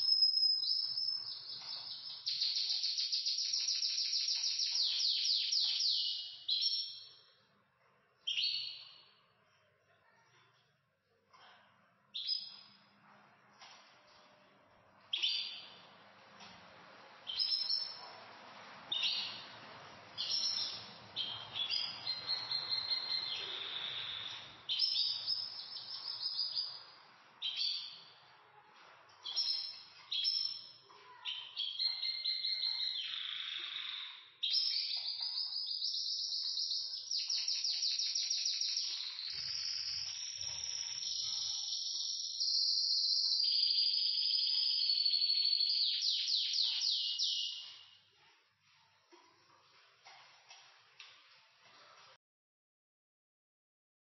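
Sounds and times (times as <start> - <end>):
canaries singing: 0.0 - 7.3, 15.0 - 28.2, 28.8 - 48.1.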